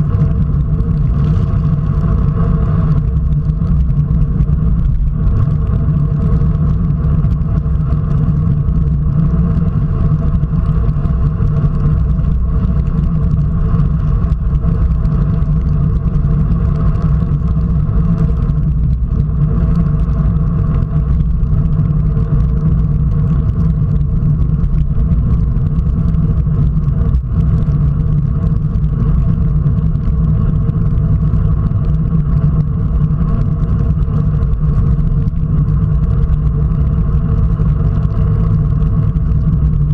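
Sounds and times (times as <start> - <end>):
faint steady hum: 0.0 - 39.9
road noise on wet tarmac: 0.0 - 39.9
wind rushing over microphone: 0.0 - 39.9.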